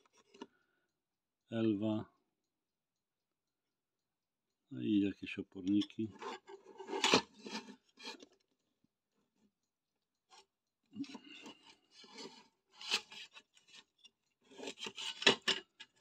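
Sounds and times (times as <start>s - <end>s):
casing scraping on wooden desk: 6.2s - 8.2s.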